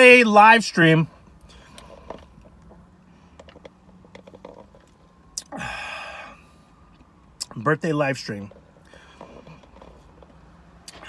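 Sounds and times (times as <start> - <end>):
breathy exhale: 5.5 - 6.7.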